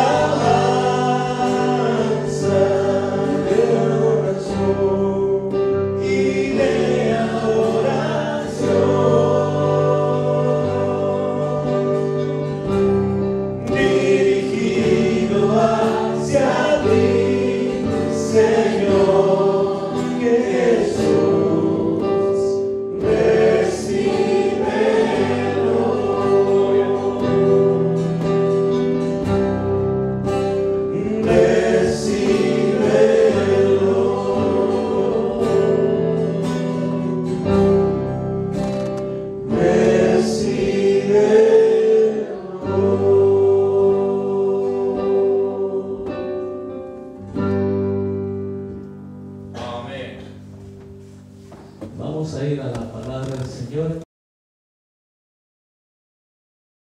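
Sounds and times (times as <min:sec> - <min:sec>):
choir singing worship song: 0:00.0 - 0:51.6
held chords: 0:00.0 - 0:52.6.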